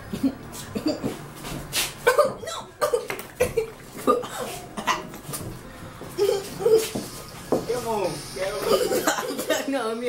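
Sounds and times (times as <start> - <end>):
boy coughing and sputtering: 0.0 - 1.2, 2.0 - 5.2, 6.2 - 7.0, 8.6 - 9.8.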